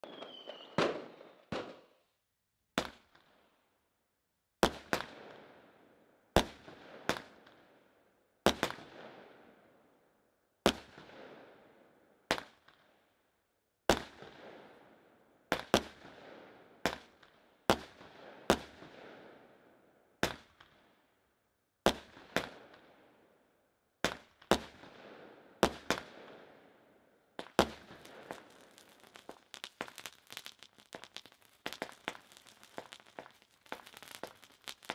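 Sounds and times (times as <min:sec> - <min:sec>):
fireworks shots popping: 0:27.4 - 0:34.9.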